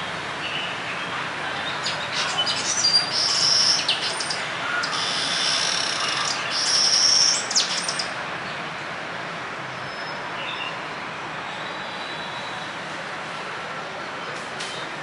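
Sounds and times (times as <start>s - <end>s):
starling harsh grating calls: 2.1s - 8.0s.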